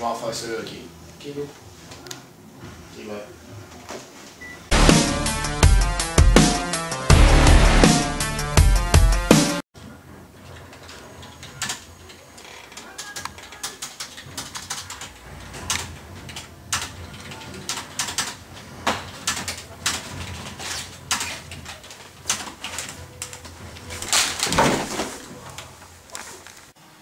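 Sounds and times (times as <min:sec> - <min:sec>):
keyboard typing: 0:11.2 - 0:24.1.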